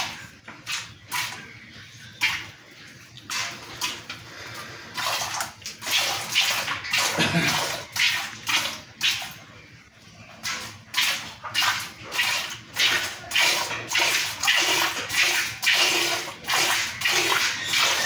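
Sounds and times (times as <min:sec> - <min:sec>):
milk squirting into a pail: 0:03.2 - 0:09.4, 0:10.4 - 0:18.0.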